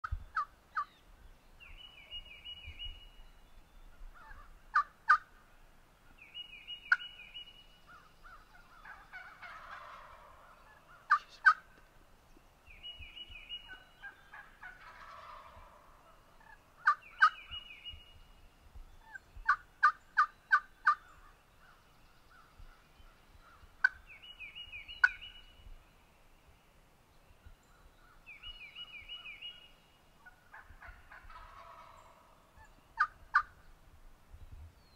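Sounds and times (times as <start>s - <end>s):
turkey gobbling: 4.2s - 5.3s, 8.6s - 11.6s, 14.0s - 17.5s, 19.4s - 21.0s, 25.0s - 25.2s, 30.2s - 33.5s
turkey yelps: 8.8s - 11.6s, 14.0s - 17.4s, 30.2s - 32.3s, 33.0s - 33.5s.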